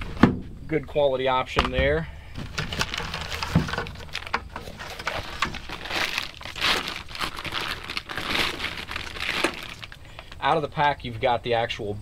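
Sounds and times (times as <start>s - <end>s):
fabric rustling and crinkling: 2.4s - 10.0s.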